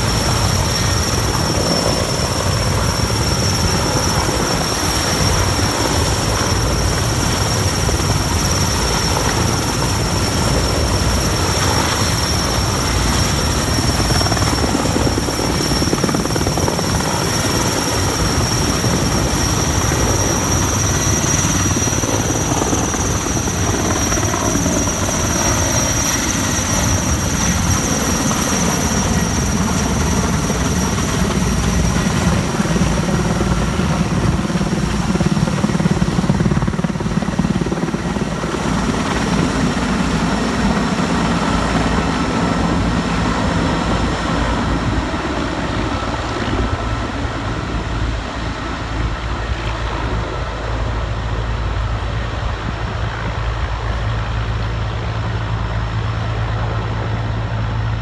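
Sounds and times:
helicopter rotor chopping: 0.0 - 58.0
turbine engine whine: 0.0 - 58.0.

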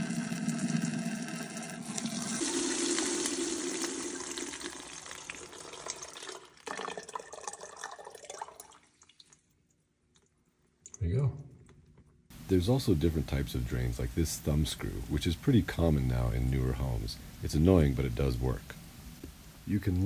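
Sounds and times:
water pouring into plastic jug: 0.0 - 9.5
water dripping: 0.0 - 12.3.

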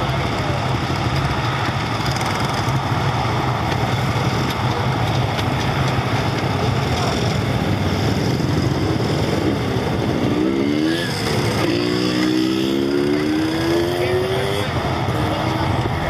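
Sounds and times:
engine drone: 0.0 - 16.0.

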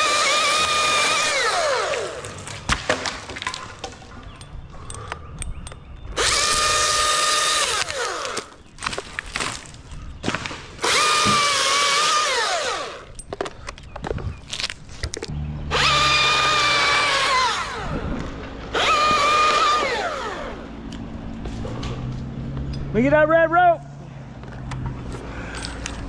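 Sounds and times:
chainsaw revving whine: 0.0 - 2.3, 6.2 - 8.5, 10.8 - 13.1, 15.6 - 18.1, 18.7 - 20.8.

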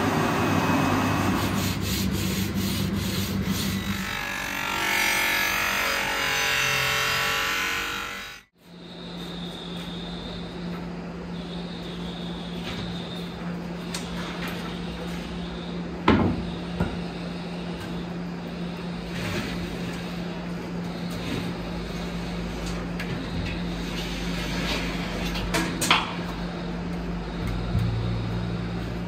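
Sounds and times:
steady low hum: 0.0 - 29.0
workshop knocks and clunks: 16.0 - 17.1.

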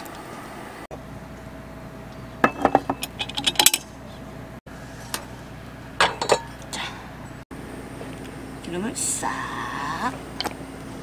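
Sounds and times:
utensils clinking on cookware: 6.0 - 6.5.

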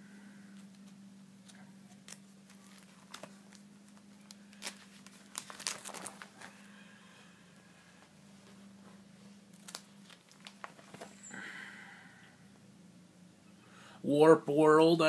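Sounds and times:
steady low hum: 0.0 - 15.0
plastic sleeve pages crinkling: 0.6 - 6.6, 9.5 - 11.2.

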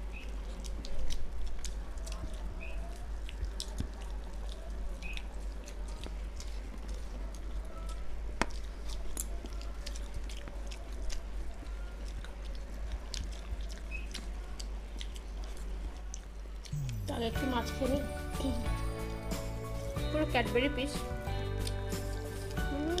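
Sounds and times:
wet chewing: 0.0 - 20.1, 21.0 - 23.0
food squished between fingers: 0.1 - 17.1
low hum: 16.7 - 20.3.

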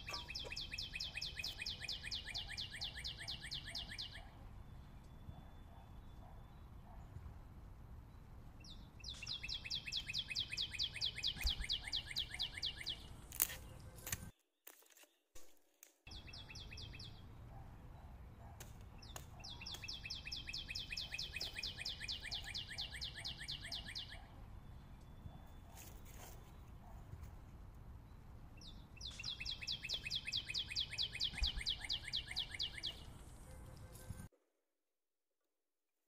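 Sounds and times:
bird trilling: 0.0 - 4.2.

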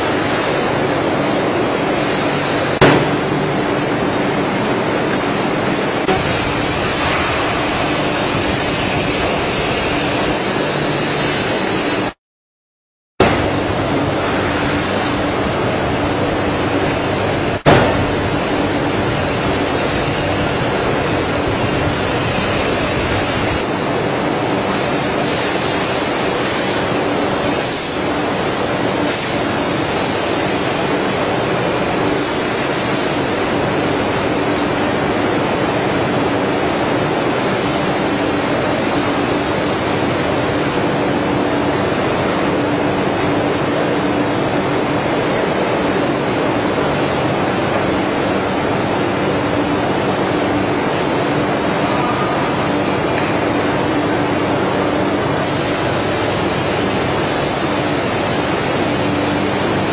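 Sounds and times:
machine hissing and humming: 0.0 - 12.2, 13.2 - 59.9.

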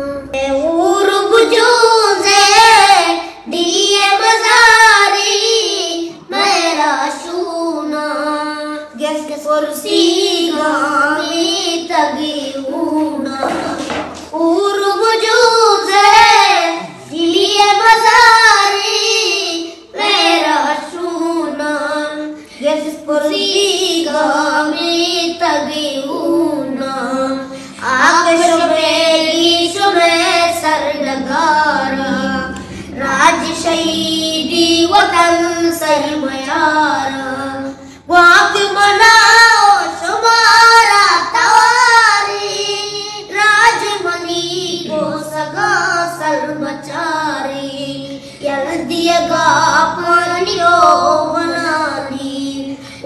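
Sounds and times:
high voice singing: 25.9 - 37.6, 38.5 - 52.8
singer breathing: 27.5 - 27.8, 32.6 - 33.0, 37.7 - 38.1, 48.1 - 48.4, 52.7 - 53.0.

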